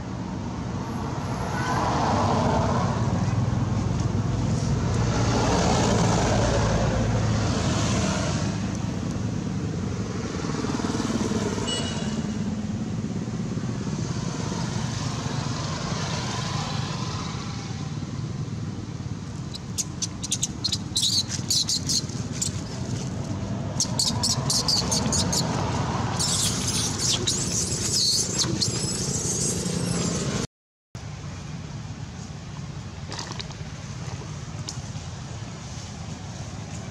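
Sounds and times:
motor vehicle passing: 1.3s - 30.5s
baby monkey squeaking: 19.5s - 22.9s, 23.8s - 30.2s.

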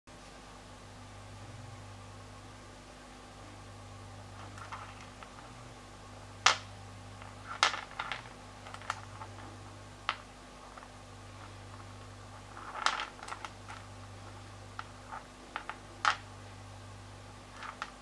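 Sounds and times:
low steady hum: 0.1s - 18.0s
stones clicking together: 6.4s - 9.4s, 12.4s - 13.8s, 14.8s - 16.3s, 17.5s - 18.0s.

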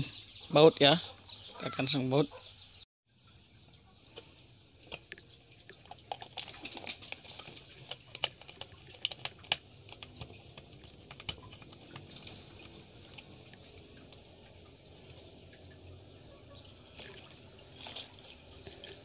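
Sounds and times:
screwdriver clicking and scratching: 6.1s - 13.4s.

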